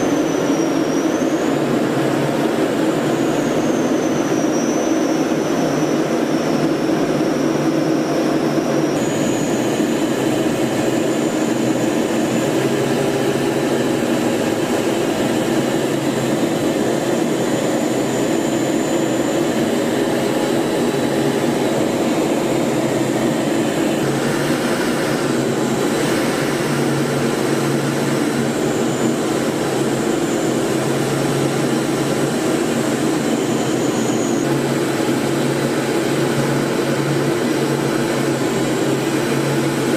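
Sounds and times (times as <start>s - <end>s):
aircraft engine drone: 0.0s - 39.9s
constant high whine: 0.0s - 39.9s
rushing airflow: 9.0s - 33.8s.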